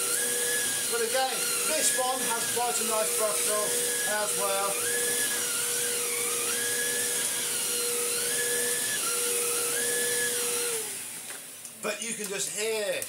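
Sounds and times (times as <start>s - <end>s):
vacuum cleaner motor whine: 0.0s - 11.7s.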